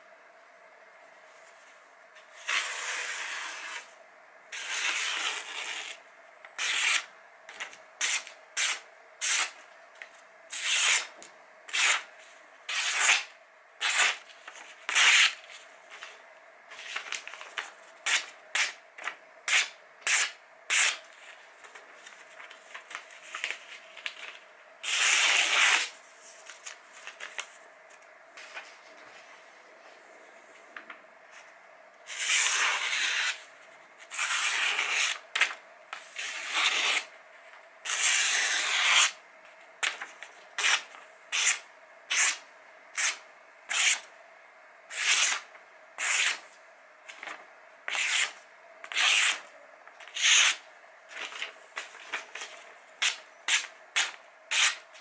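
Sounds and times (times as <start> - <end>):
blade slicing paper: 2.4 - 3.9, 4.6 - 6.0, 6.6 - 9.6, 10.5 - 12.1, 12.7 - 16.1, 16.7 - 27.5, 32.1 - 37.1, 37.8 - 39.2, 39.8 - 42.4, 43.0 - 44.1, 44.9 - 46.5, 47.1 - 55.0.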